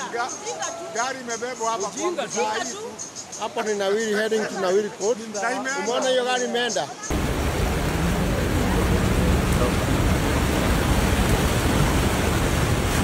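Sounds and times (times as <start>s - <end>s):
floodwater rushing: 7.1s - 13.0s.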